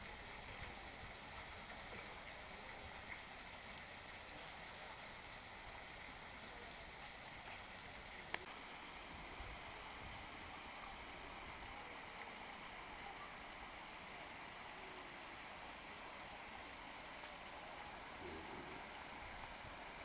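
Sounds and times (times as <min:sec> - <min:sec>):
faint outdoor hiss: 0:00.0 - 0:20.0.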